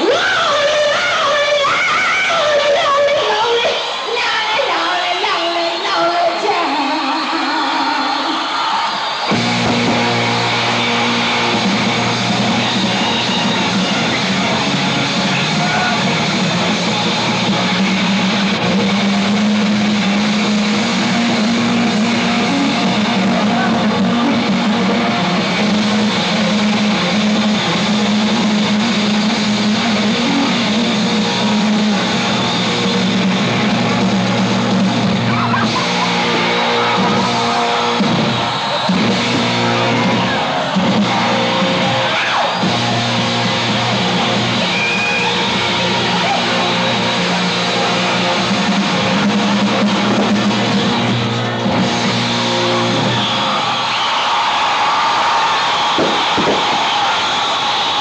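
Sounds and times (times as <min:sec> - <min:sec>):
loud rock music with electric guitar: 0:08.5 - 0:58.0.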